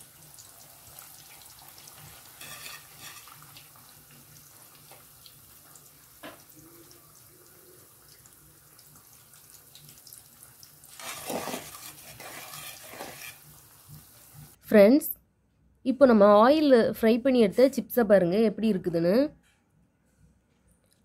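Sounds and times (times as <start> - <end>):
banana slices deep-frying in oil: 0.0 - 14.6
skimmer stirring in oil: 1.6 - 3.9, 10.9 - 14.5.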